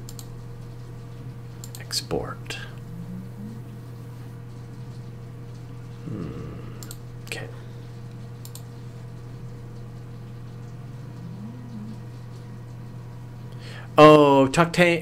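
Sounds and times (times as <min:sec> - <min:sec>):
low electrical hum: 0:00.0 - 0:15.0
computer clicks: 0:08.4 - 0:08.7.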